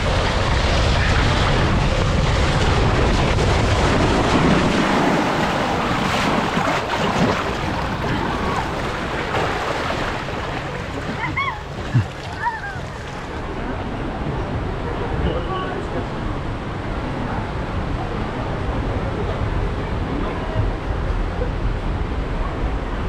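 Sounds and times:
low rumble: 0:00.0 - 0:13.6
mat rushing down water slide: 0:00.0 - 0:13.6
wind buffeting microphone: 0:00.0 - 0:15.1.

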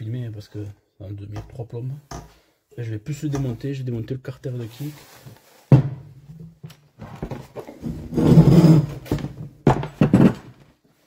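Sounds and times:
rasping scraping noise: 0:07.8 - 0:09.0.

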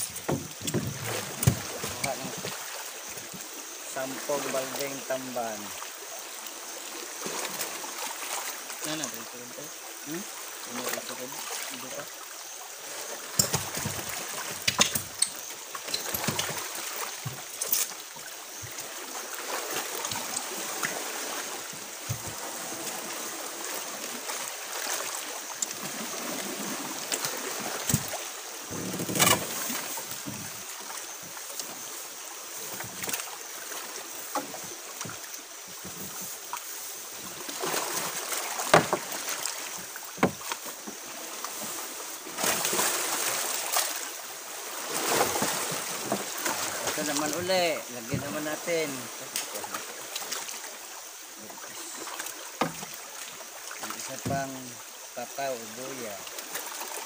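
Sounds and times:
fishing net knocks and rustles: 0:00.0 - 0:02.7, 0:13.2 - 0:18.8, 0:26.5 - 0:30.6, 0:34.2 - 0:44.0, 0:44.9 - 0:47.4
water sloshing against boat hull: 0:00.0 - 0:57.0.

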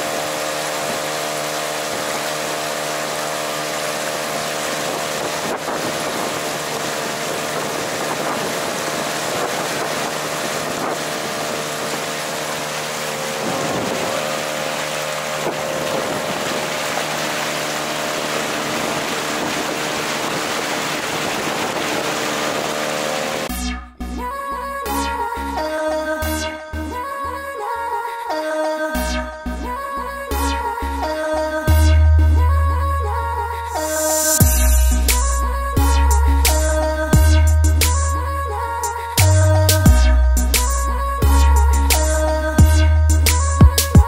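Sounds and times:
outboard motor running: 0:00.0 - 0:23.5, 0:29.0 - 0:44.0
wind: 0:00.0 - 0:23.5, 0:24.3 - 0:44.0
water noise: 0:00.0 - 0:23.6.

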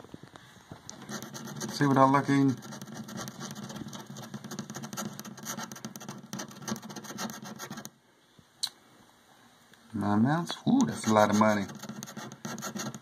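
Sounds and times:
scratching lottery ticket coating: 0:00.9 - 0:07.9, 0:10.8 - 0:13.0.

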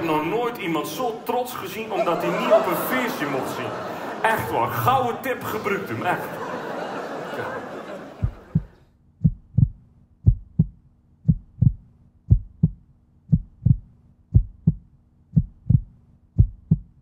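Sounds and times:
audience noise: 0:00.0 - 0:08.8
heartbeat thumps: 0:08.2 - 0:17.0.

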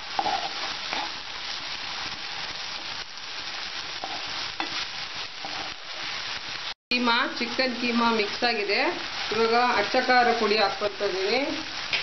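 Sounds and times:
spoon scraping pan: 0:00.0 - 0:01.3, 0:03.9 - 0:06.1
meat sizzling in frying pan: 0:00.0 - 0:12.0.

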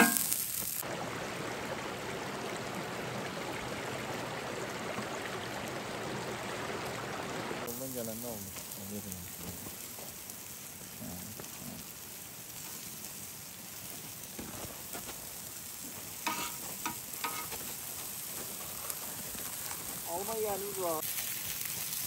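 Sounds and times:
food sizzling and crackling: 0:00.0 - 0:00.9, 0:07.6 - 0:22.0.

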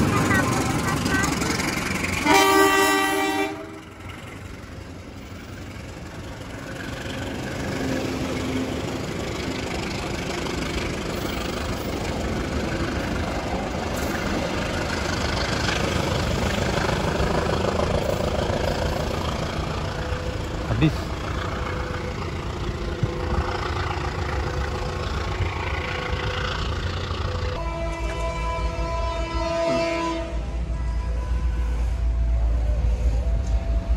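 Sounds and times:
train coaches rolling on rails: 0:00.0 - 0:33.9
locomotive horn blast: 0:02.2 - 0:03.9, 0:27.3 - 0:32.1.

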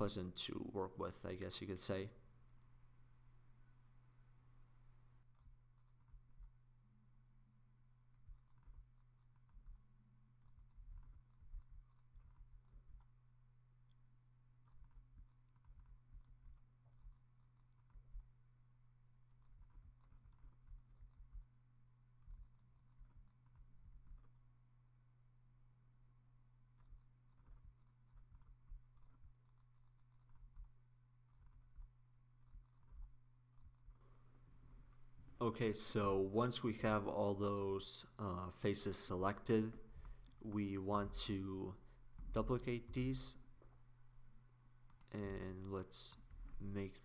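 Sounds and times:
steady low hum: 0:00.0 - 0:47.0
mouse and keyboard clicks: 0:05.3 - 0:06.6, 0:08.1 - 0:13.2, 0:14.6 - 0:18.3, 0:19.3 - 0:21.5, 0:22.2 - 0:24.4, 0:26.8 - 0:34.0.

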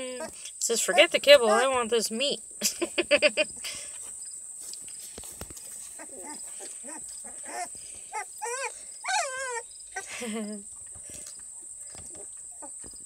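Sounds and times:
puppies whimpering: 0:00.0 - 0:01.8, 0:05.8 - 0:10.3.

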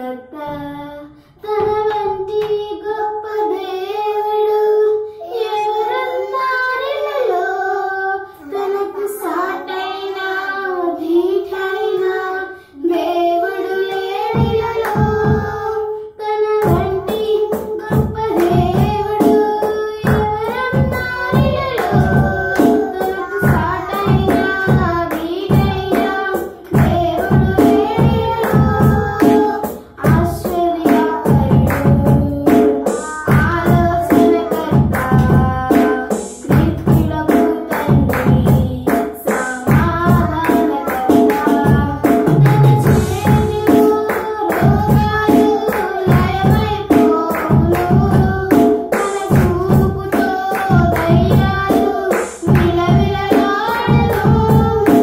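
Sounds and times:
children singing hymn: 0:00.0 - 0:55.0
percussion beat: 0:13.4 - 0:15.8, 0:16.6 - 0:55.0.

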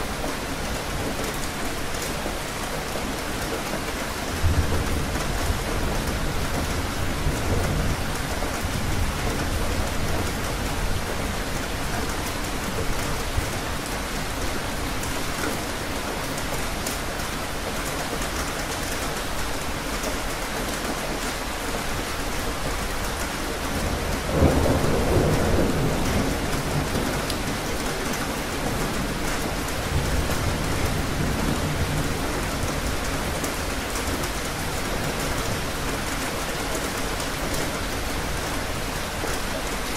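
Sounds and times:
heavy rain falling: 0:00.0 - 0:39.9
low rolling thunder: 0:23.8 - 0:33.4.

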